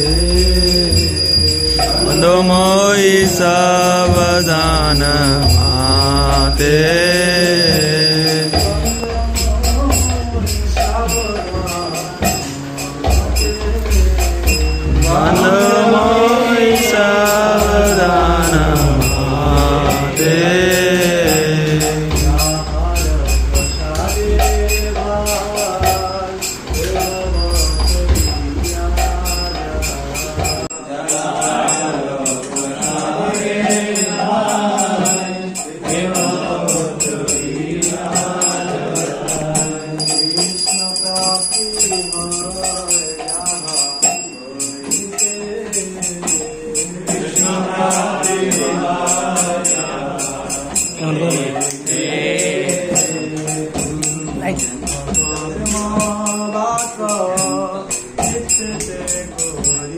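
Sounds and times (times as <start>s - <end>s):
low accompaniment: 0.0s - 35.0s
hand cymbals beat: 0.0s - 59.9s
voices singing a chant: 0.0s - 59.9s.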